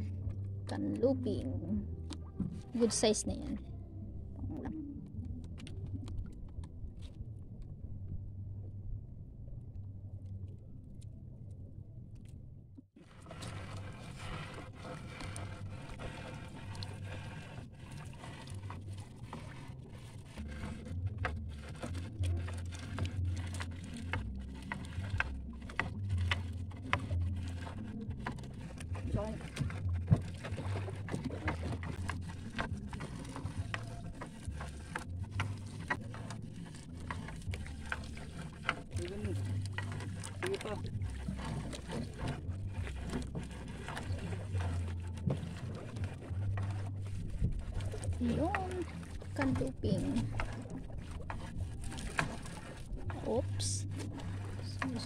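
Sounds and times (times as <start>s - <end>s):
low steady hum: 0.0s - 55.0s
steady low rumble: 0.0s - 55.0s
water dripping and splashing: 13.0s - 55.0s.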